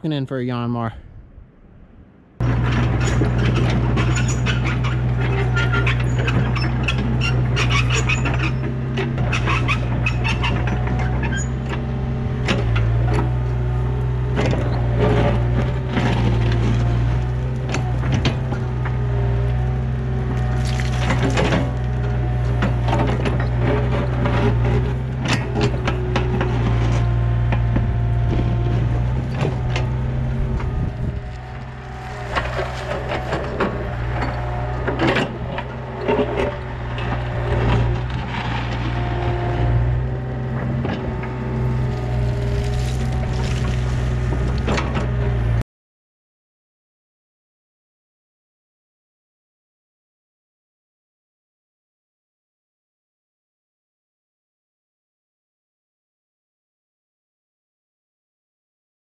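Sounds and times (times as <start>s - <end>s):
diesel engine under load: 2.4s - 45.6s
bucket scraping through stony dirt: 2.5s - 8.6s, 20.4s - 27.2s, 28.4s - 35.5s, 41.7s - 45.0s.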